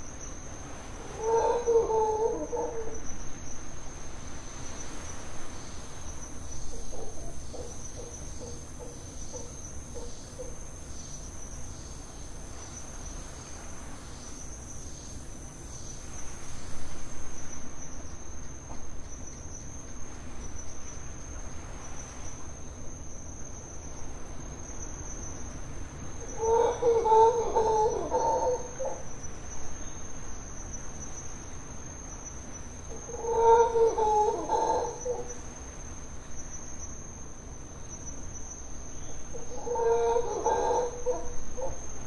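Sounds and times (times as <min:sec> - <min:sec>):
insects trilling: 0:00.0 - 0:42.0
low animal calls: 0:26.3 - 0:29.0, 0:33.0 - 0:35.4, 0:39.3 - 0:41.8.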